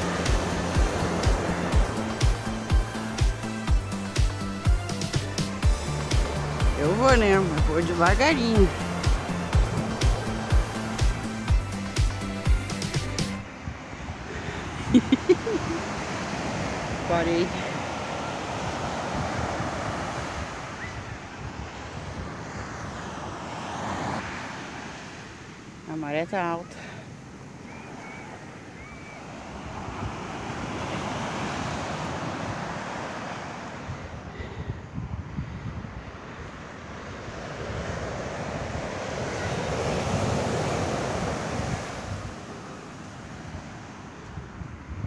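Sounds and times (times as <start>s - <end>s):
small waves breaking on beach: 0.0s - 12.2s, 13.0s - 45.0s
sea surf: 0.0s - 45.0s
wind buffeting microphone: 5.6s - 11.9s, 13.4s - 24.0s, 27.2s - 45.0s.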